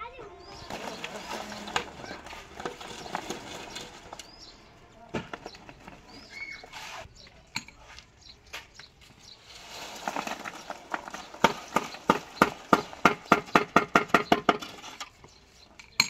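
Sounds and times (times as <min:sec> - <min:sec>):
wet concrete pouring: 0:00.6 - 0:04.2, 0:09.4 - 0:13.0.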